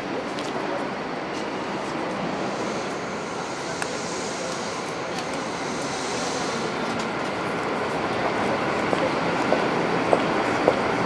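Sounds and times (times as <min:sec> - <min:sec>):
train rumbling: 0:00.0 - 0:11.0
high hiss: 0:02.2 - 0:08.1.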